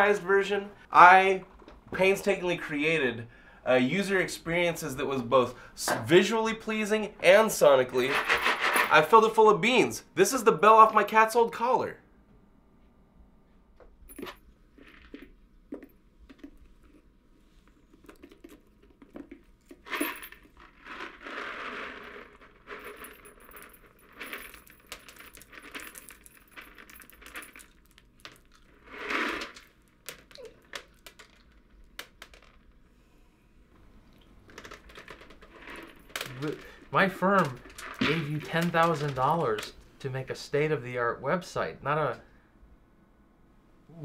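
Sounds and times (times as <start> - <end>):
beans spilling out: 19.2 - 23.3, 24.2 - 29.8, 34.5 - 39.8.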